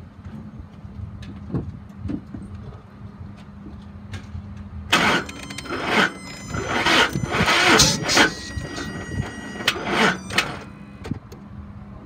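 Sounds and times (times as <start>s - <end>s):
engine starter cranking: 4.9s - 11.1s.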